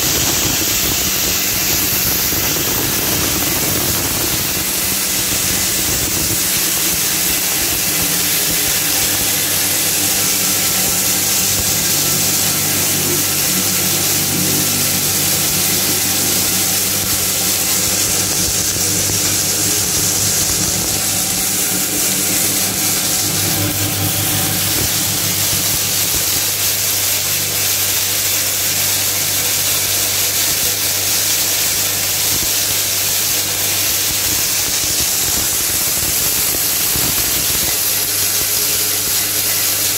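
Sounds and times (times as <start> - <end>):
crushing machine motor hum: 0.0 - 28.2
loud even hiss: 0.0 - 39.9.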